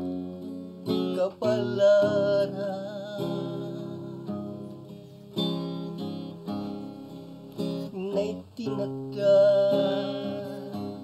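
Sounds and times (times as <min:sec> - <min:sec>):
acoustic guitar ballad: 0:00.0 - 0:11.0.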